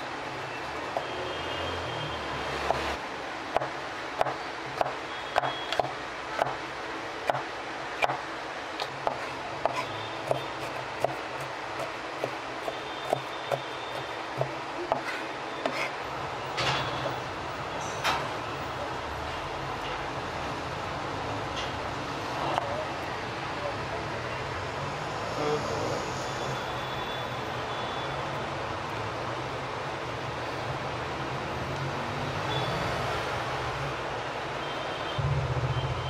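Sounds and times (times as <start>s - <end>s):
steady background noise: 0.0s - 36.0s
knife chopping on plastic board: 3.6s - 6.6s, 7.2s - 8.2s, 8.8s - 15.9s.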